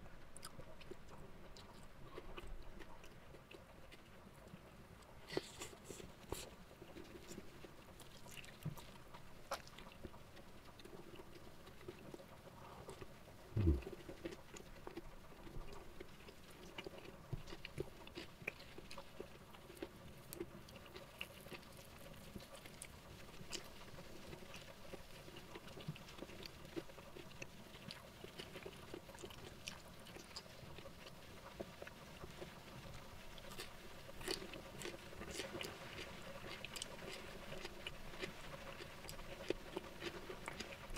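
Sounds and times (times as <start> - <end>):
person chewing: 0.4 - 22.9, 25.5 - 30.5, 33.4 - 40.9
dull low thump: 13.6 - 13.8.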